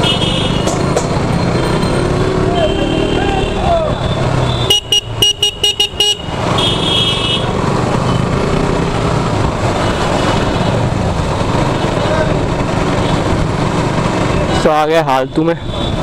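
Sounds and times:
motorcycle engine: 0.0s - 14.6s
street traffic: 0.0s - 16.0s
motorcycle horn tooting: 2.6s - 7.5s.

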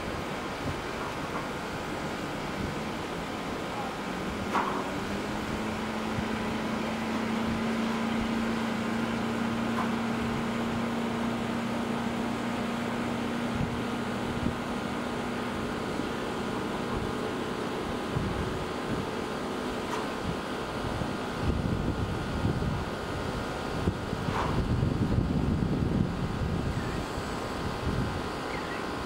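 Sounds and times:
low machine hum: 0.0s - 29.0s.

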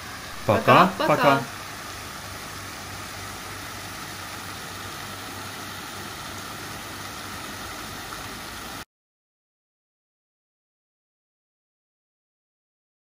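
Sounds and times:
fountain water splashing into pool: 0.0s - 8.8s.

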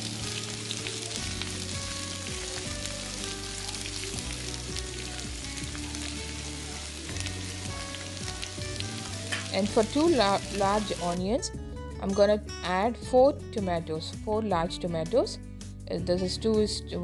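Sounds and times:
onions sizzling in oil: 0.0s - 11.2s
soft background music: 0.0s - 17.0s.

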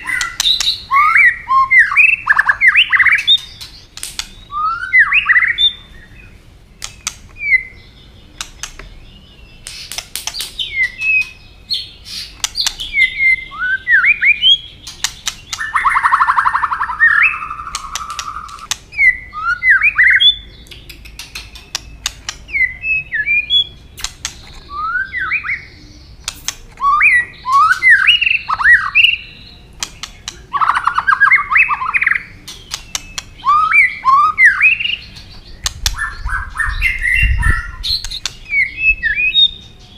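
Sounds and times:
sharp bird tak clicks: 0.0s - 1.2s, 1.9s - 4.4s, 6.8s - 7.6s, 8.3s - 9.0s, 9.6s - 11.4s, 12.1s - 13.3s, 14.8s - 22.8s, 23.9s - 25.6s, 26.2s - 39.6s
bird whistled song: 0.0s - 39.9s.

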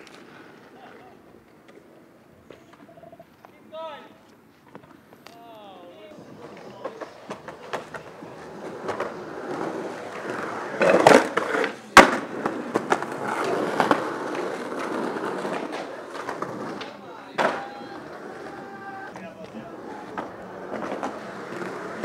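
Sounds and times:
skateboard wheels rolling on pavement: 0.0s - 22.0s
skateboard hitting ground: 6.2s - 22.0s.

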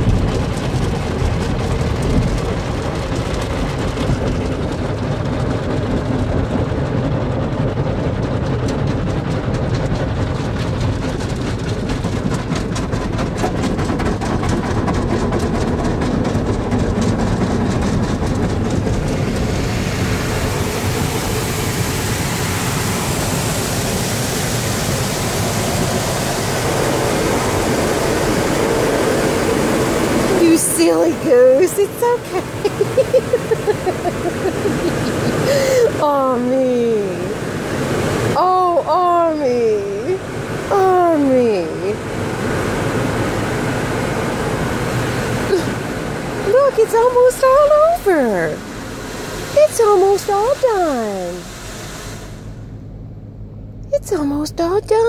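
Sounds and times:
car wash machinery rumble: 0.0s - 55.0s
strong hiss: 48.6s - 52.8s.

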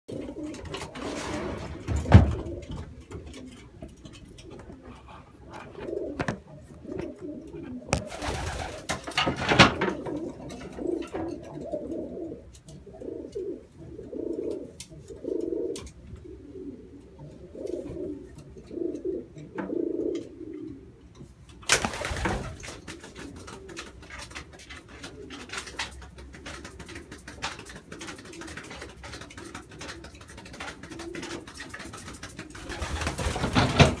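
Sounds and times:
pigeons cooing: 0.1s - 34.0s.

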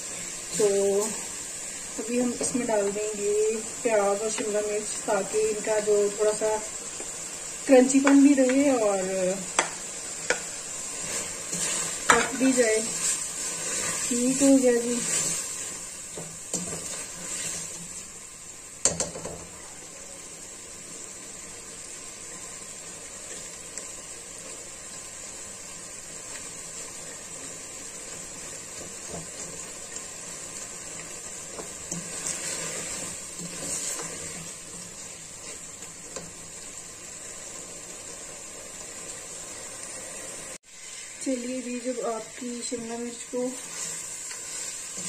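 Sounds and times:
food sizzling in a metal pan: 0.0s - 45.0s
spatula scraping and knocking pan: 9.6s - 17.8s.

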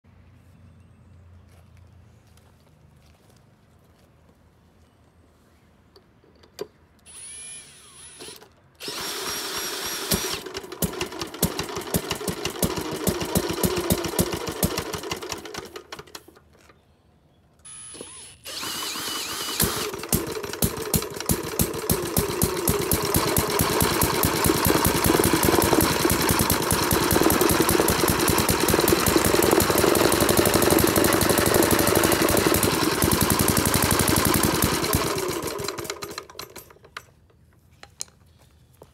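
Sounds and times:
cordless drill spinning engine: 7.1s - 16.3s, 17.7s - 36.9s
single-cylinder engine running: 8.8s - 16.4s, 18.5s - 37.0s.

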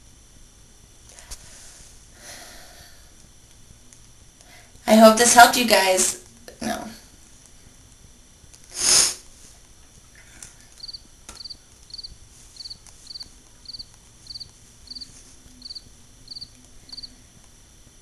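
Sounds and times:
cricket chirping: 10.8s - 17.2s.

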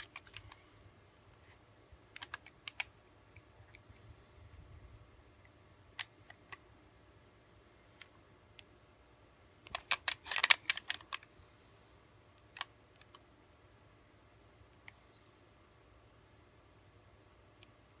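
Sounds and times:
sharp clicks and rattles: 0.0s - 1.0s, 2.1s - 4.0s, 9.6s - 11.3s.

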